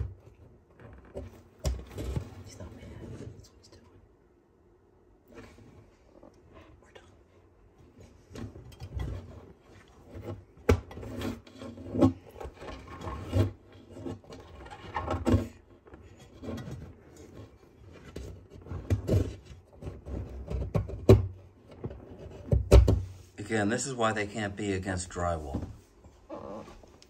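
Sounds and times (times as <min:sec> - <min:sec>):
tortoise shell scraping on wood: 0:00.0 - 0:03.4, 0:07.8 - 0:27.0.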